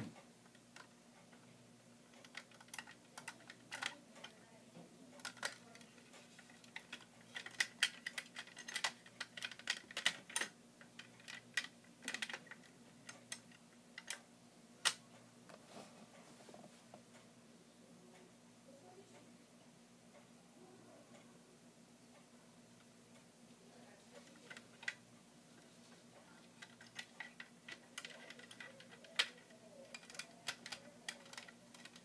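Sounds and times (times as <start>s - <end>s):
small plastic clicks and snaps: 26.6s - 32.0s.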